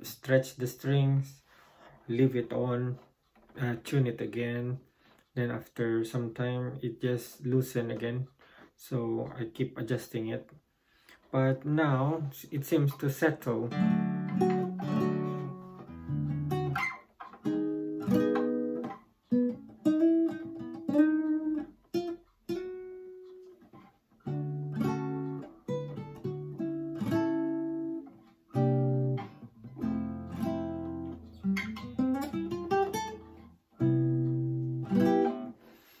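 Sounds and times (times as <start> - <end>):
classical guitar chords and notes: 11.8 - 35.6.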